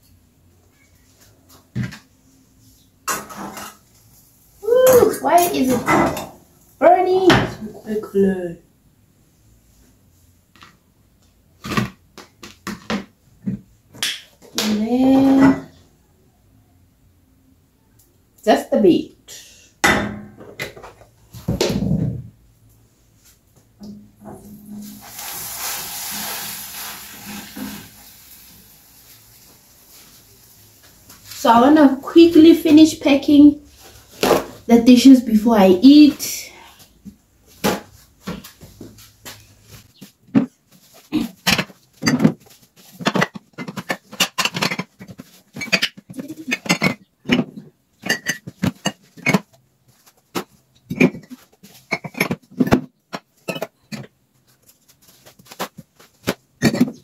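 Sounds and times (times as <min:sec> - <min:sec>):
frying pan sizzling: 0:24.4 - 0:31.6
dishes and cutlery clattering: 0:43.0 - 0:49.5.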